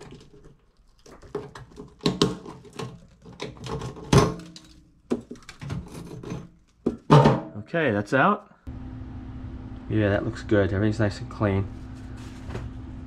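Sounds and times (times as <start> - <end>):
sink strainer clunking and scraping: 0.0 - 7.6.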